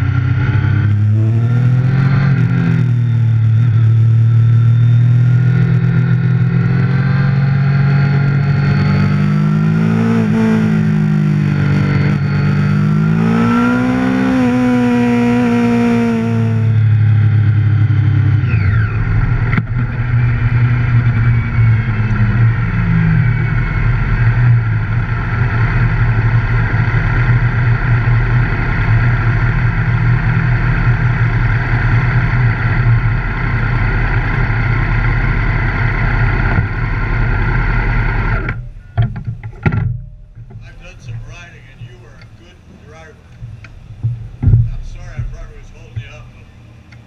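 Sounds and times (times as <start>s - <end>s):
vehicle engine humming: 0.0s - 47.0s
brief falling whine: 0.2s - 26.6s.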